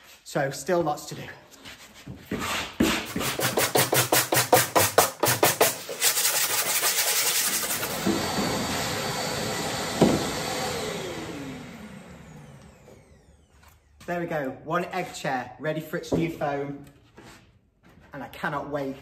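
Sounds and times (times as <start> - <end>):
wire brush scrubbing: 3.0 - 8.0
vacuum cleaner hiss: 6.0 - 12.6.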